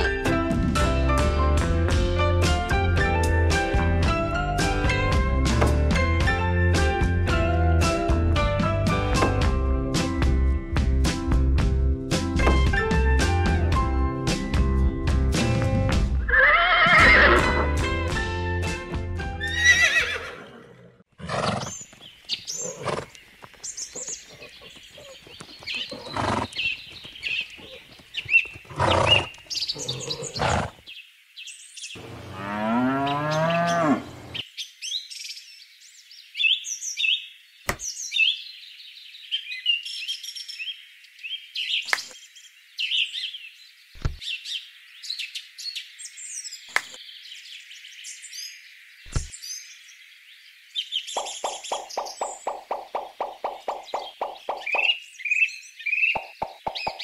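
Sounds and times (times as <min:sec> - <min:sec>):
music with drums: 0:00.0 - 0:16.3
birds chirping: 0:19.4 - 0:57.0
long animal call: 0:28.7 - 0:30.8.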